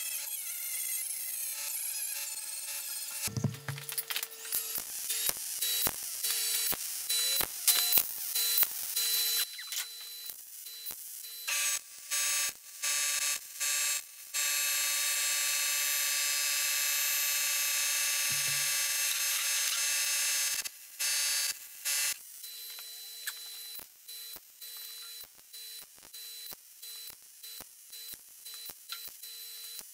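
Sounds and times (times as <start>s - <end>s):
welder buzzing: 0.0s - 13.8s, 14.4s - 23.8s.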